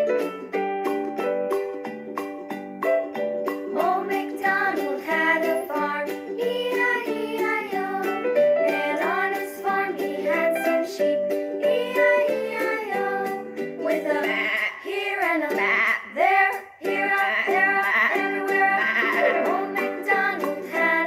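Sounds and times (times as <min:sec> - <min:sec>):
plucked ukulele-like strings: 0:00.0 - 0:21.0
person singing: 0:03.7 - 0:21.0.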